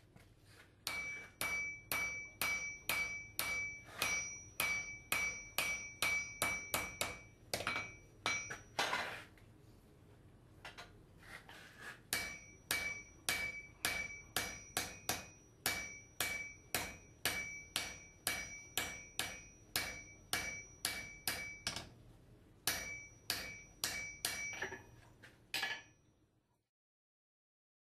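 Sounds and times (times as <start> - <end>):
hammer striking metal on anvil: 0.8 - 8.9, 12.1 - 22.0, 22.6 - 24.9, 25.6 - 26.0.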